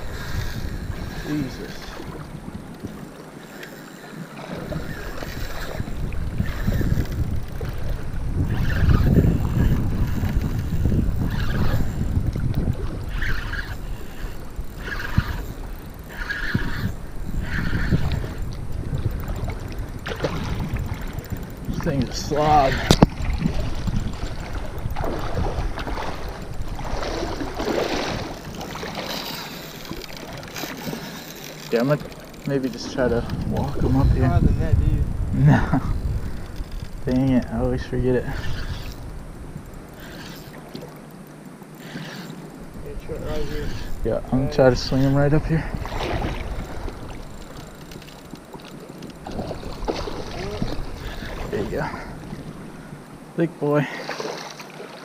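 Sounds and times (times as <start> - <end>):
wind buffeting microphone: 0.0 - 41.2, 41.8 - 53.4
water sloshing at bank: 19.0 - 33.9, 45.3 - 52.9, 53.9 - 55.0.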